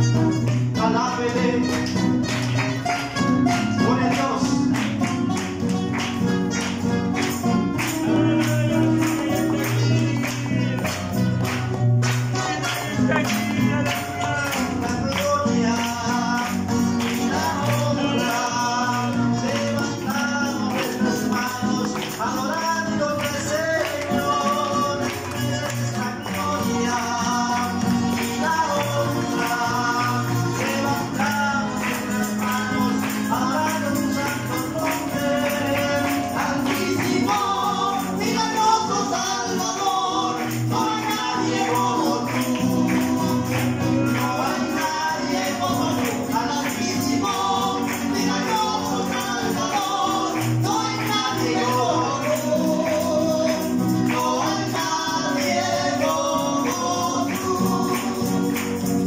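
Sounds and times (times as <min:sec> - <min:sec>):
strummed acoustic guitars: 0:00.0 - 0:59.0
two men singing: 0:00.0 - 0:59.0
jingling percussion beat: 0:12.5 - 0:15.4.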